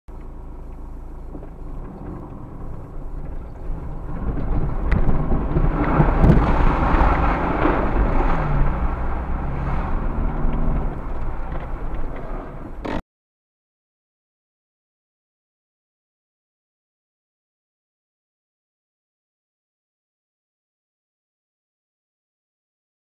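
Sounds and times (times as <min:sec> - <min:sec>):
engine rumble: 0:00.1 - 0:13.0
water splashing against vehicle: 0:01.4 - 0:12.8.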